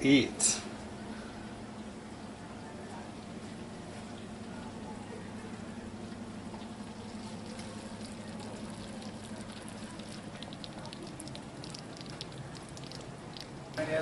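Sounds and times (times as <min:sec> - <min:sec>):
food crackling and popping: 0:06.5 - 0:13.8.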